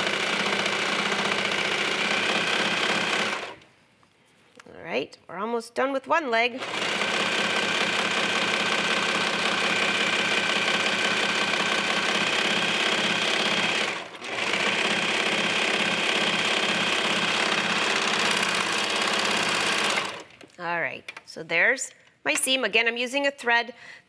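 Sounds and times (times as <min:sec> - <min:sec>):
serger sewing machine whirring: 0:00.0 - 0:03.6, 0:06.6 - 0:20.4.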